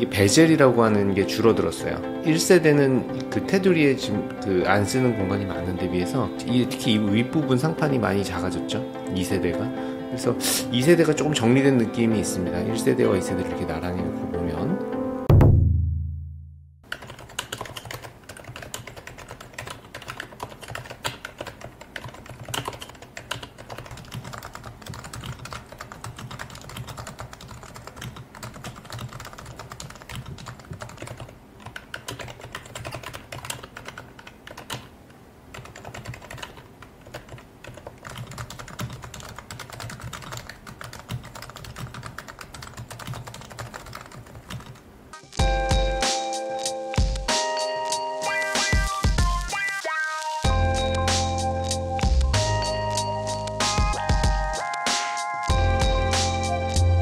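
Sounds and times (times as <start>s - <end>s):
fast keyboard typing: 16.9s - 34.9s, 35.5s - 44.8s.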